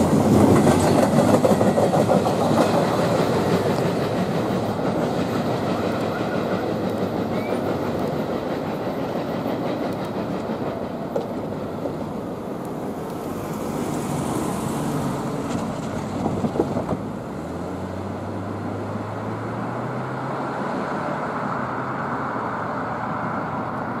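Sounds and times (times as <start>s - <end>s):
rail clicks: 0.0s - 14.1s, 15.3s - 17.2s
train wheels rumbling on rails: 0.0s - 24.0s.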